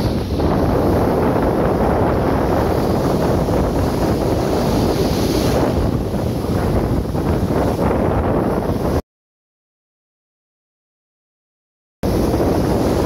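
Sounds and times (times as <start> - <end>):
surf breaking on sandy beach: 0.0 - 9.0, 12.0 - 13.0
wind buffeting microphone: 0.0 - 9.0, 12.0 - 13.0.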